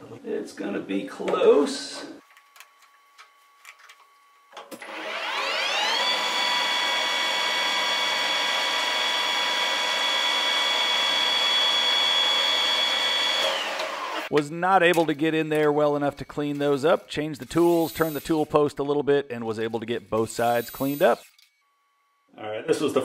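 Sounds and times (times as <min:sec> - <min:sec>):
metal lathe spindle whine: 0:04.8 - 0:14.3.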